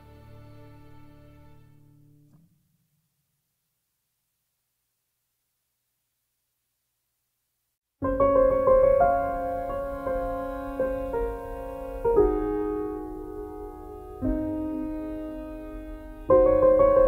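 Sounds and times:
piano music: 0:08.0 - 0:17.0.

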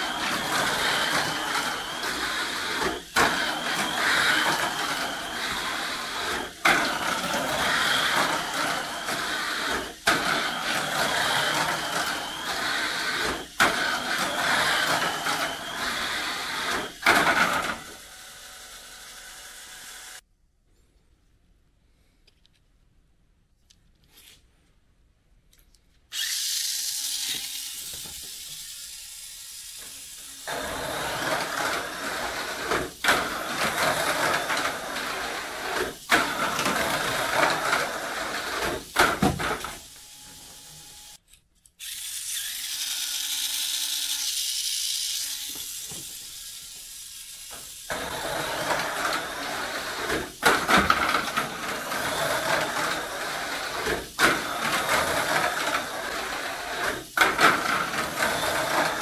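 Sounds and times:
toy car clacking against track walls: 0:00.0 - 0:18.0, 0:29.8 - 0:39.8, 0:47.4 - 0:59.0
high-pitched electric motor whirr: 0:00.0 - 0:20.2, 0:26.1 - 0:39.0, 0:39.7 - 0:41.2, 0:41.8 - 0:59.0.

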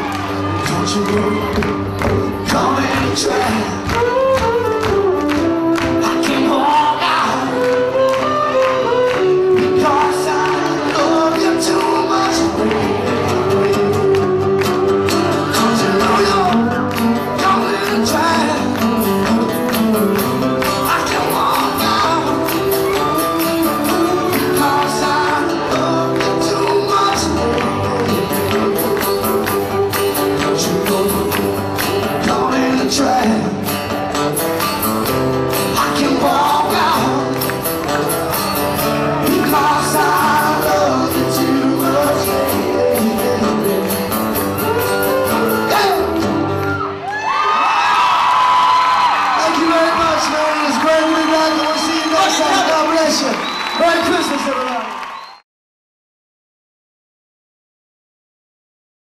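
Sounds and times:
man singing country song: 0:00.0 - 0:34.2, 0:35.5 - 0:46.5
strummed acoustic guitars: 0:00.0 - 0:46.8.

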